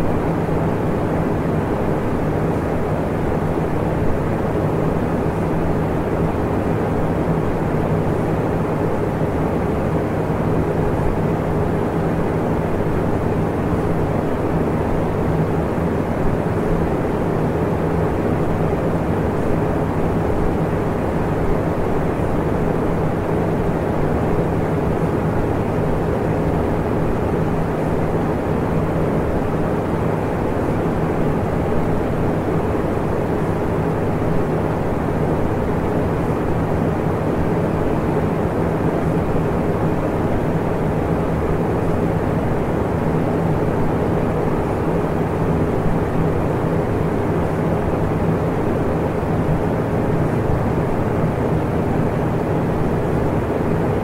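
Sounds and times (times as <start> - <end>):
faint hum: 0.0 - 54.0.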